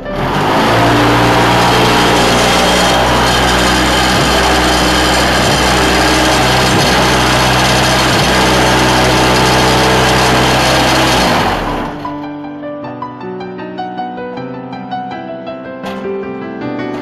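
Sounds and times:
machine running with deep hum: 0.0 - 12.2.

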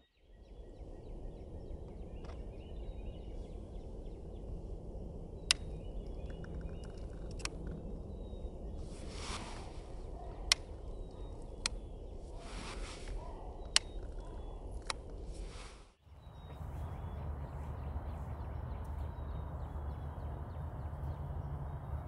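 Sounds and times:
birds calling: 0.0 - 22.0
short rush of noise: 8.8 - 10.0, 12.4 - 13.2.

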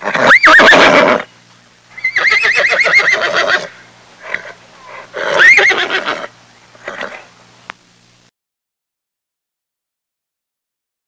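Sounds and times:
horse whinnying: 0.0 - 1.3, 2.0 - 7.2.

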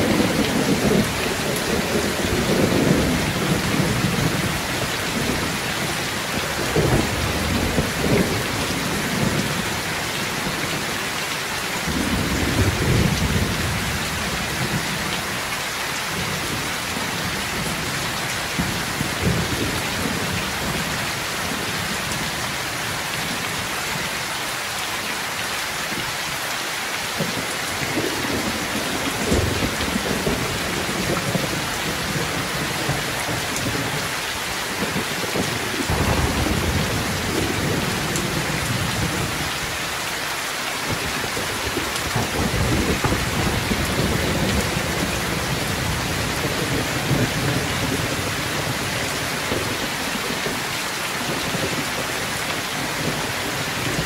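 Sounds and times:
thunder rumbling: 0.0 - 9.9, 27.2 - 34.2, 34.8 - 39.8, 40.9 - 48.9
heavy rain pouring: 0.0 - 54.0.

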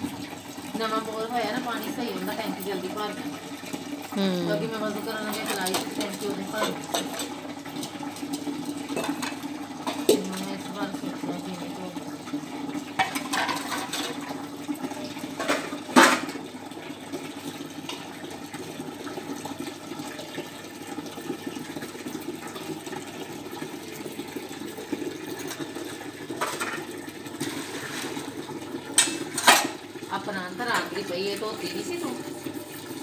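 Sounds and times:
water running: 0.0 - 33.0
metal utensils clanking: 5.3 - 8.0, 8.9 - 10.6, 13.0 - 14.2, 29.0 - 29.8.

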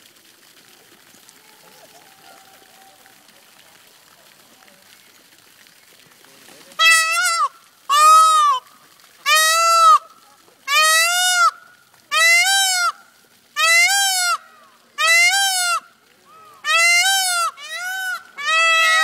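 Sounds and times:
peacock calling: 6.7 - 19.0.

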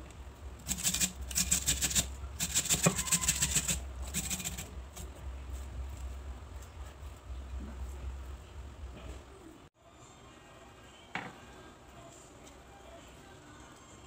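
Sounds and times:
food grating on metal grater: 0.6 - 5.1.

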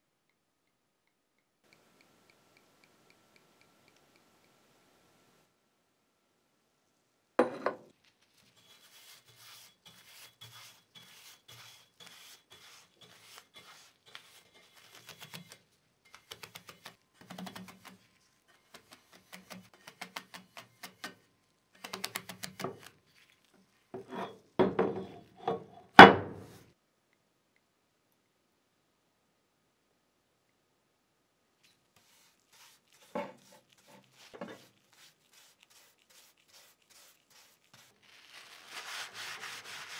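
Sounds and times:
bristle brush scratching on pan: 8.1 - 20.9, 21.9 - 24.4, 31.7 - 39.9.

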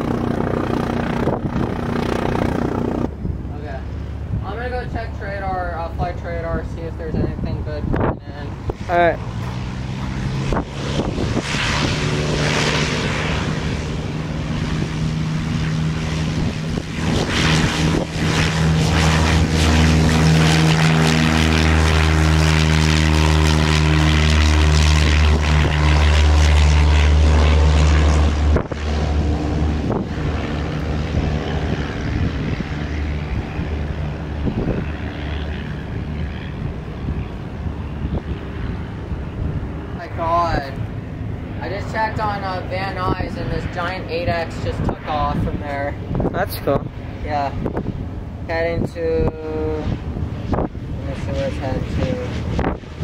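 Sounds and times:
propeller plane engine drone: 0.0 - 53.0.

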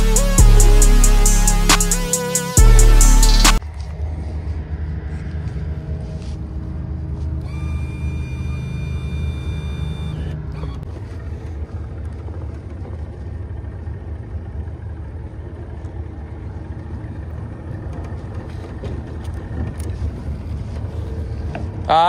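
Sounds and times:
background music: 0.0 - 5.2
boat motor running: 6.5 - 22.0.

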